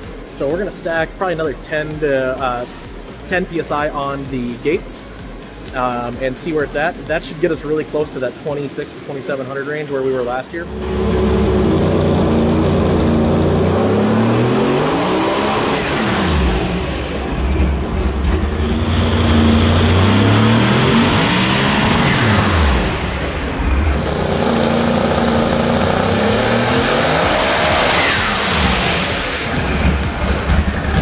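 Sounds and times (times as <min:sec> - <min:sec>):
drag engine revving: 0:10.6 - 0:31.0
engine hitting rev limiter: 0:10.6 - 0:31.0.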